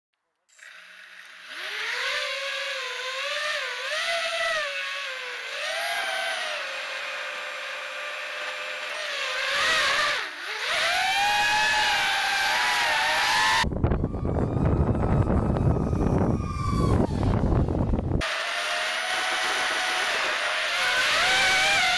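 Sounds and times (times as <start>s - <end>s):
drone motors whining: 0.5s - 21.9s
wind noise on microphone: 13.3s - 18.2s.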